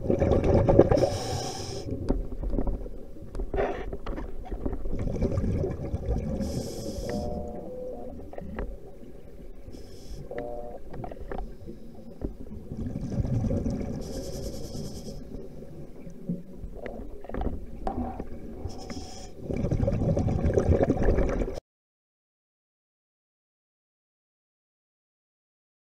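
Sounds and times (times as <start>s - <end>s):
exhaled air bubbling: 0.0s - 3.0s, 4.6s - 9.7s, 12.3s - 21.6s
regulator hiss on inhale: 1.0s - 2.0s, 6.4s - 7.6s, 9.7s - 10.3s, 14.0s - 15.4s, 18.6s - 19.4s.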